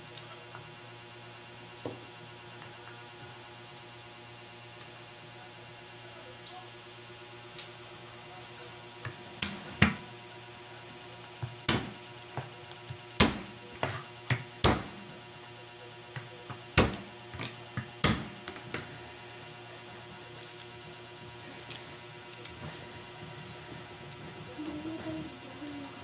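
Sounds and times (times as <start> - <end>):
knife chopping on plastic board: 11.4 - 15.0, 16.2 - 18.8.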